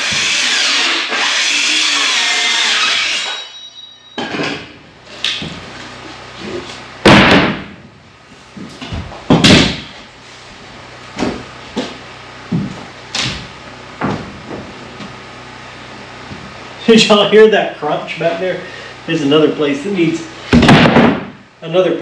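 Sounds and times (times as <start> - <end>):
circular saw cutting board: 0.0 - 3.8
saw blade winding down: 0.0 - 3.8
boards dropped on wooden floor: 8.6 - 9.9, 14.0 - 14.7, 20.5 - 21.4.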